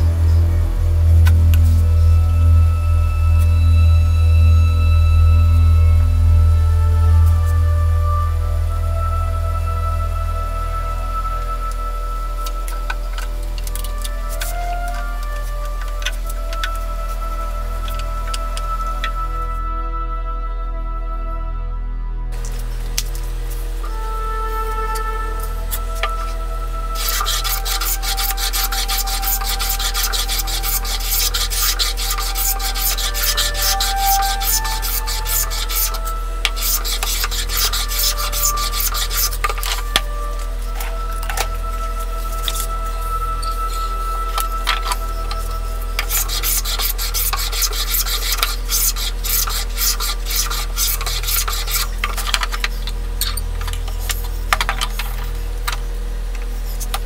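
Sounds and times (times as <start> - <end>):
background music: 0.0 - 22.4, 23.4 - 50.1
plane shaving wood rasping strokes: 24.6 - 53.0.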